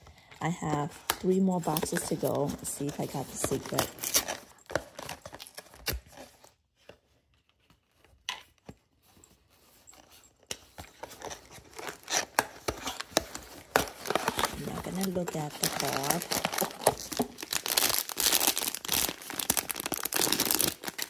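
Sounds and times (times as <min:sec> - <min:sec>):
paper packaging tearing and crinkling: 0:00.6 - 0:06.5, 0:11.1 - 0:21.0.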